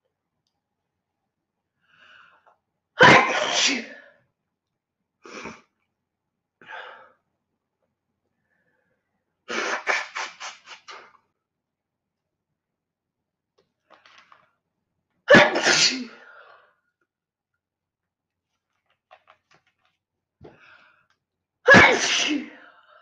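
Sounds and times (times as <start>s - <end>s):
woman sneezing: 3.0s - 4.0s, 9.5s - 11.1s, 15.3s - 16.2s, 21.7s - 22.6s.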